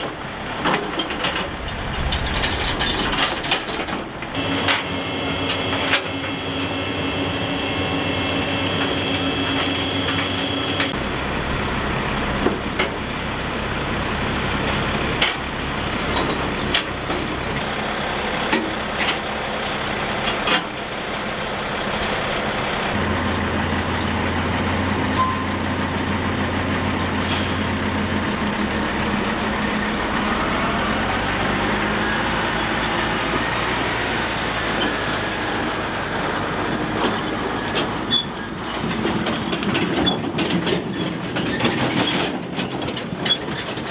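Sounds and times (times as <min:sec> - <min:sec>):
tie-down chains clanking: 0:00.0 - 0:06.6, 0:08.1 - 0:12.9, 0:14.6 - 0:23.0
truck rising whine: 0:00.0 - 0:42.1
heavy diesel engines running: 0:00.0 - 0:43.9.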